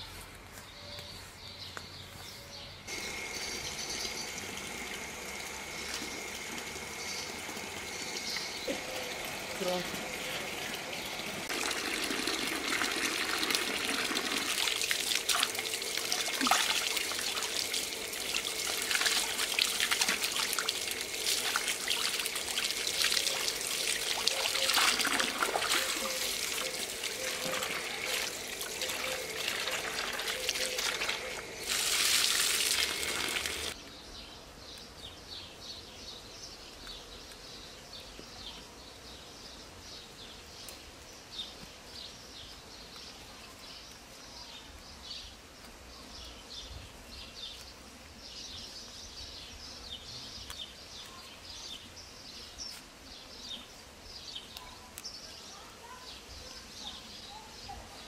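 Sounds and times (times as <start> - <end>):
birdsong: 0.0 - 58.0
water trickling and splashing: 2.9 - 33.8.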